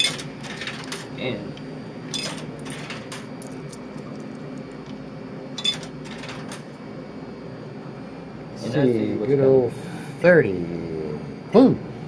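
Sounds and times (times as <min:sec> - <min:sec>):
coins clicking through coin mechanism: 0:00.0 - 0:01.1, 0:02.1 - 0:03.8, 0:05.6 - 0:06.6
steady low hum: 0:00.0 - 0:12.0.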